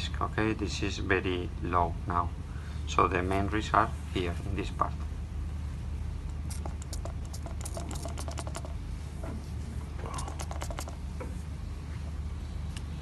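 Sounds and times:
steady low hum: 0:00.0 - 0:13.0
gloved hands clicking and rustling: 0:06.3 - 0:08.8, 0:10.1 - 0:11.0.

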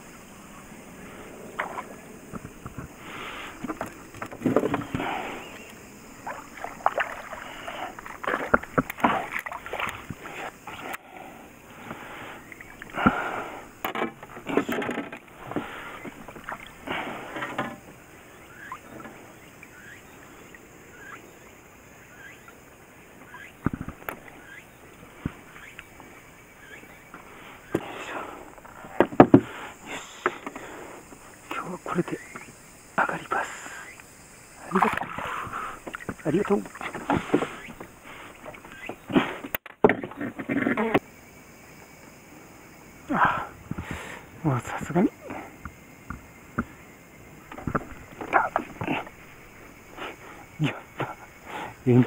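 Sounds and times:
fish splashing at water surface: 0:06.2 - 0:10.2.

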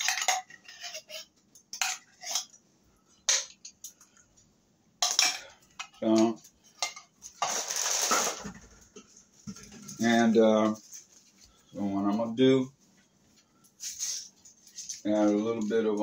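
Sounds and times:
metal utensil clinking on tin can: 0:00.0 - 0:01.2.

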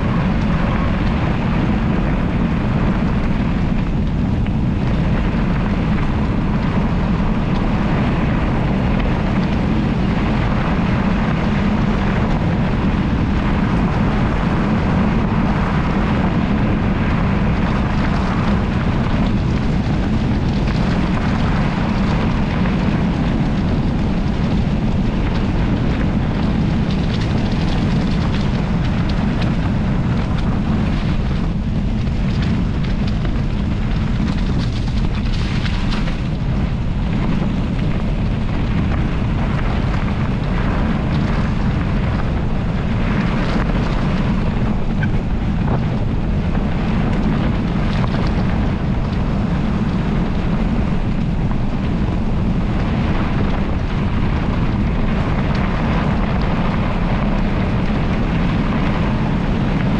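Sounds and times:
bike tyres rumbling over gravel: 0:00.0 - 0:59.9
wind buffeting microphone: 0:00.0 - 0:59.9
clicks and rattles from bumps: 0:19.0 - 0:39.0.

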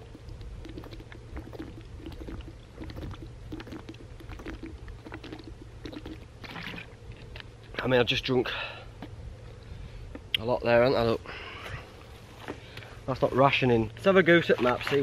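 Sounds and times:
man gulping water: 0:00.0 - 0:07.7
water glugging in bottle: 0:00.0 - 0:07.7, 0:14.4 - 0:15.0.

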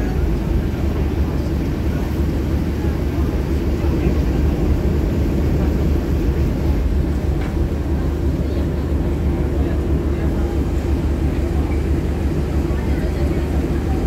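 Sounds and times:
boat engine rumbling: 0:00.0 - 0:14.0
faint voices: 0:00.0 - 0:14.0.

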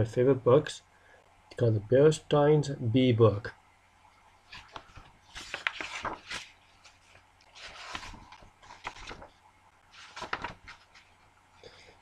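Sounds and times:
picture book rustling: 0:04.4 - 0:11.3.

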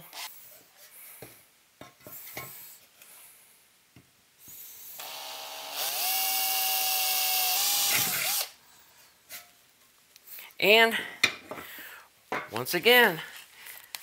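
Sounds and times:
power drill whining: 0:05.0 - 0:08.6.

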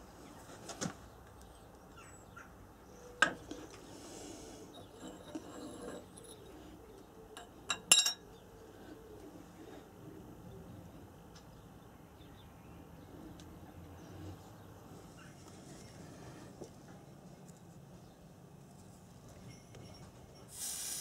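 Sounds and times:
steel parts clinking and knocking: 0:04.7 - 0:06.6, 0:07.4 - 0:08.2.

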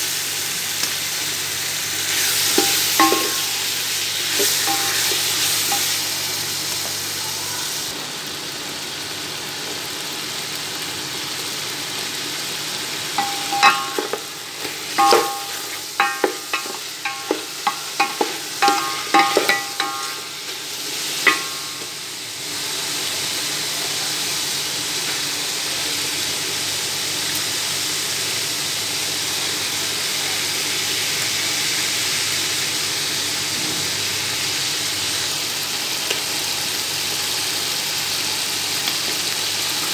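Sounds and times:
chicken sizzling in hot oil: 0:00.0 - 0:39.9
utensil clinking against pot: 0:02.5 - 0:03.7, 0:04.3 - 0:05.9, 0:13.2 - 0:20.4, 0:21.2 - 0:22.0.

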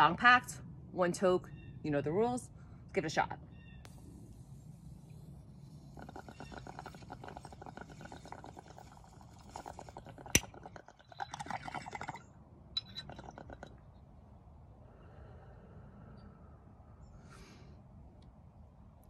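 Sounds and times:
bong water bubbling: 0:05.6 - 0:14.0.

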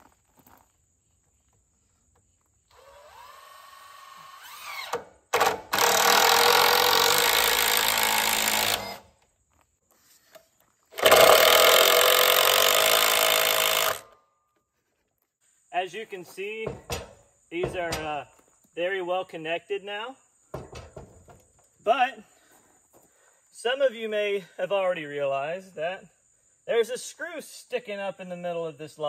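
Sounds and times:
cordless drill driving screws: 0:02.7 - 0:09.1, 0:10.9 - 0:14.2.

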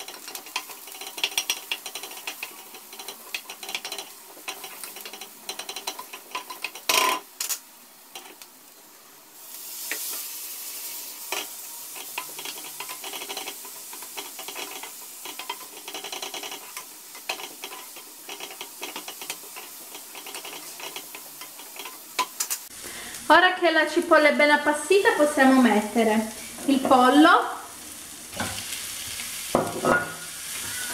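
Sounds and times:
wooden spoon scraping a pan: 0:00.0 - 0:07.3, 0:09.8 - 0:22.4, 0:29.9 - 0:30.9
onion sizzling in hot oil: 0:00.0 - 0:30.9.

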